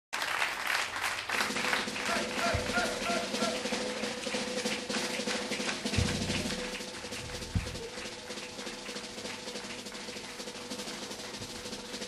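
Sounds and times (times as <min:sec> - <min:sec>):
rolling drums: 0:01.2 - 0:12.0
live band music: 0:01.3 - 0:12.0
deep bass thump: 0:02.5 - 0:03.4, 0:06.0 - 0:08.1.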